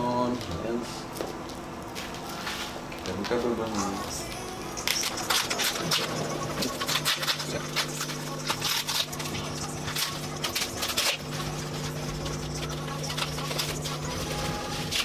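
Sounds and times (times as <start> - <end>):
bubble wrap and tape crinkling: 4.3 - 15.0.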